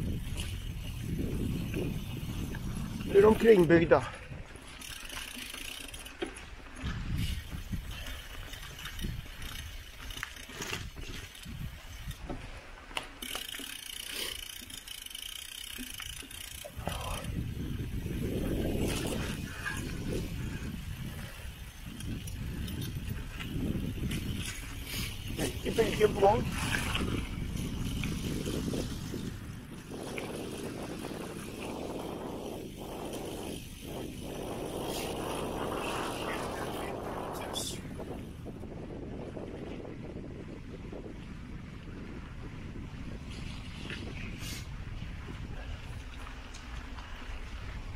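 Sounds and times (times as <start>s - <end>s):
wind buffeting microphone: 0.0s - 12.9s, 15.6s - 47.9s
bike parts rattling: 4.6s - 29.2s.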